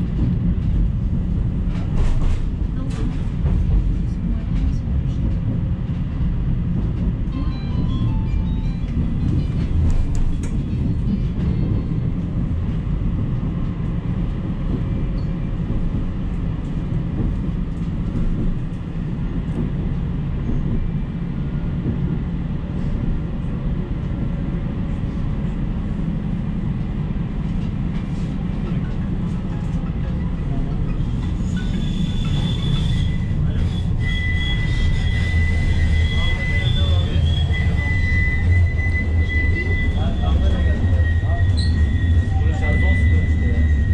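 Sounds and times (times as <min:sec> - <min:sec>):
tram wheels rumbling: 0:00.0 - 0:43.9.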